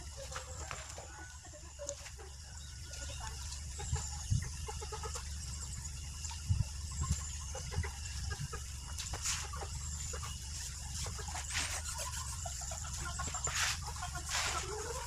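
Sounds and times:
chickens clucking: 0.0s - 15.0s
cloth scrubbing a metal wheel rim: 9.2s - 15.0s.

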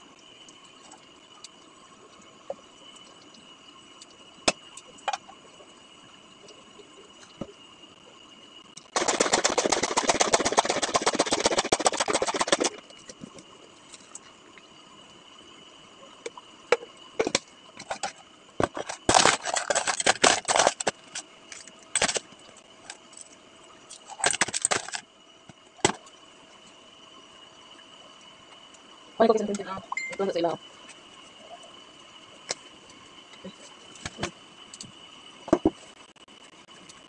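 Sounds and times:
ice cubes clattering into cup: 18.6s - 21.0s.

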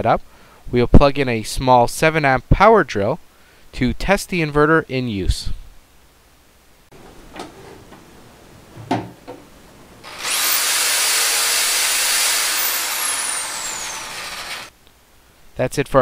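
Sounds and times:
handling knocks: 6.9s - 9.6s
electric drill whining: 10.0s - 14.7s.

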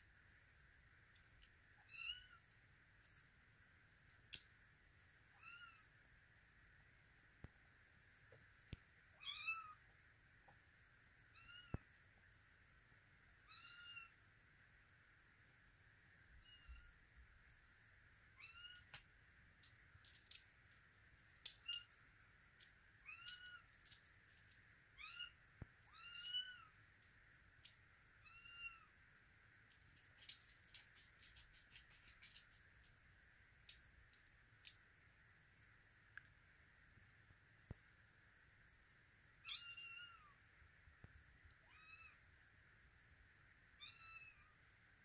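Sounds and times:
kitten meowing: 39.5s - 40.3s.

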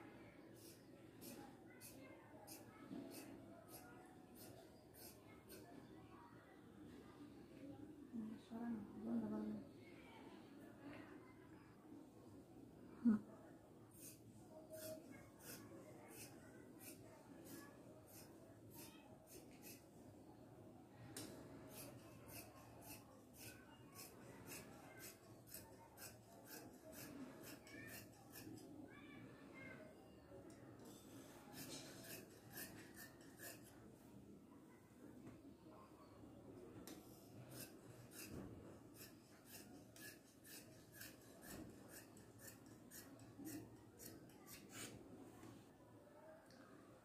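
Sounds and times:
shears snipping cloth: 21.7s - 28.6s, 31.5s - 33.7s, 36.9s - 45.0s.

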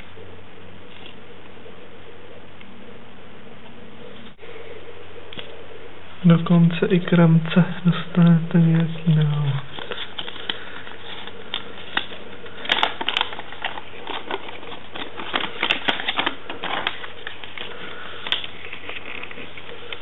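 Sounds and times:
paper crinkling: 9.0s - 20.0s.

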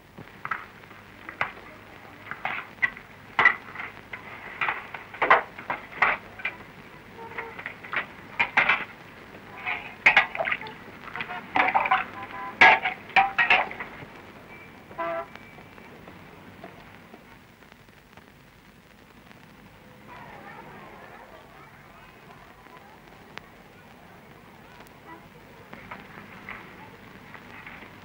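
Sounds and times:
dishes clinking and knocking: 7.3s - 8.9s, 9.6s - 14.0s.

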